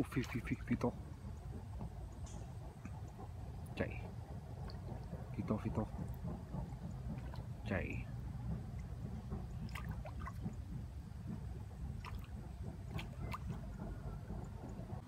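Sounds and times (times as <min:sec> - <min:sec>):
steady low rumble: 0:00.0 - 0:15.0
fish splashing in water: 0:09.3 - 0:10.6, 0:11.8 - 0:14.1.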